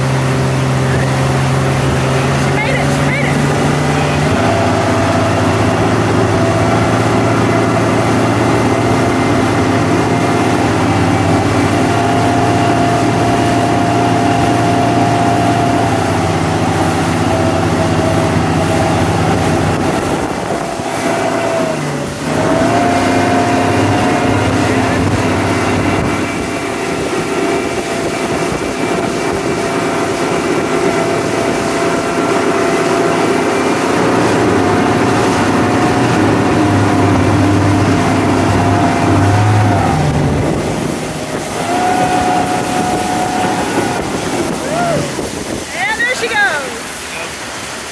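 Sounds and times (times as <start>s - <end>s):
motorboat engine running: 0.0s - 47.9s
water rushing from wake: 0.0s - 47.9s.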